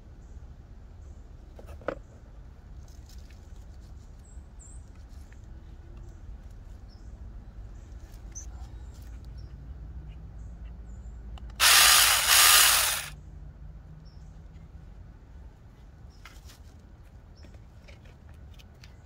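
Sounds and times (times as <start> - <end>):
rustling and ticks from handling: 2.7 - 6.8.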